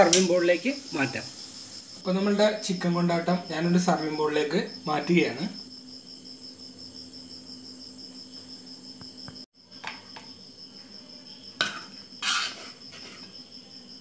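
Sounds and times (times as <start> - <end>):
crickets chirping: 0.0 - 14.0
spoon scraping metal dishes: 11.6 - 13.3.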